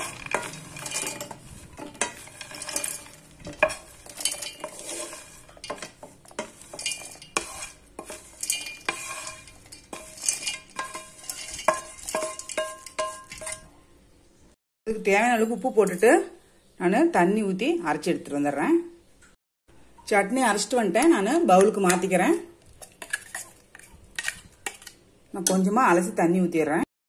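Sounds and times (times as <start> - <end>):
peanuts clattering into metal jar: 0.0 - 5.8.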